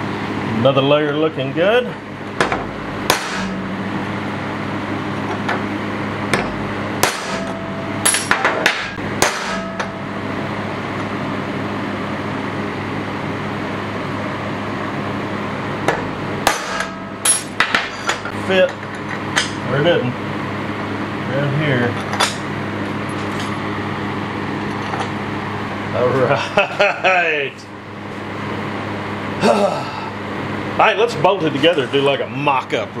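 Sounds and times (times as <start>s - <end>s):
steady low hum: 0.0s - 33.0s
hammer tapping metal: 6.3s - 10.0s, 15.8s - 18.3s.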